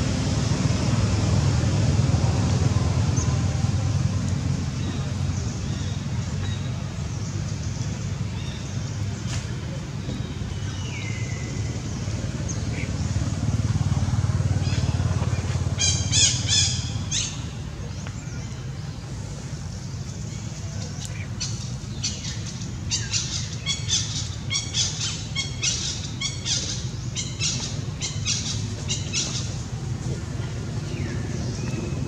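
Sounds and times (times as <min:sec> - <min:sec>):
steady low rumble: 0:00.0 - 0:32.0.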